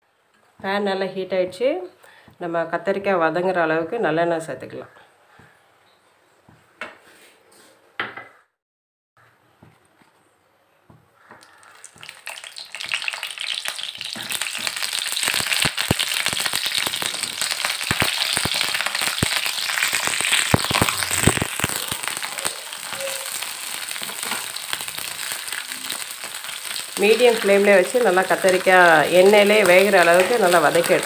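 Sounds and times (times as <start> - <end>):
eggplant sizzling in oil: 11.5 - 31.0.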